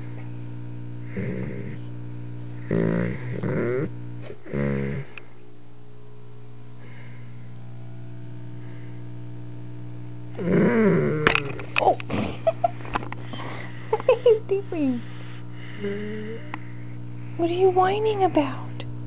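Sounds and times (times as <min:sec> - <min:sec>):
low steady hum: 0:00.0 - 0:19.0
dog grunting whine: 0:01.0 - 0:01.9, 0:02.6 - 0:05.2, 0:10.3 - 0:11.6.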